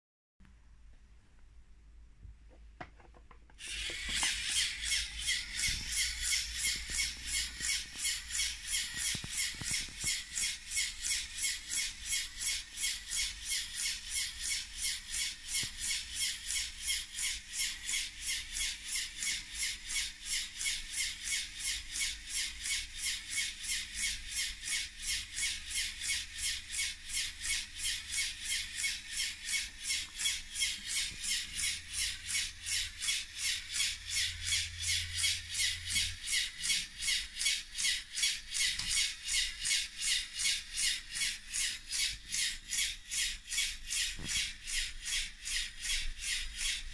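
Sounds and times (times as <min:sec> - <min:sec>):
rhythmic pneumatic air hiss: 0:03.6 - 0:15.0.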